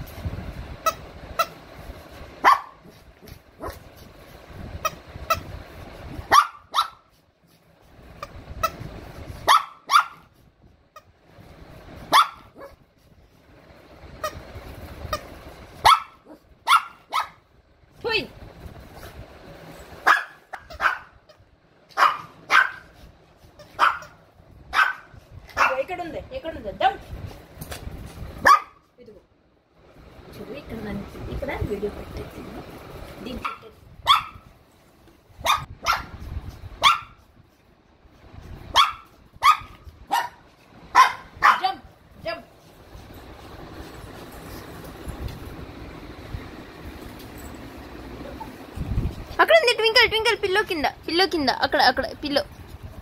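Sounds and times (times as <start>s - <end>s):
small dog barking: 2.4s - 3.9s, 6.3s - 7.1s, 9.4s - 10.3s, 12.1s - 12.8s, 15.8s - 17.4s, 20.0s - 21.3s, 21.9s - 23.0s, 23.6s - 25.9s, 28.4s - 28.9s, 33.4s - 34.5s, 35.4s - 36.2s, 36.8s - 37.2s, 38.7s - 41.9s.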